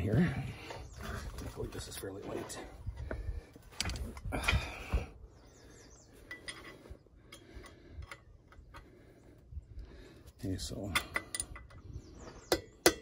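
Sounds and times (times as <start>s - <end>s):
metallic clinks and taps: 6.3s - 6.7s.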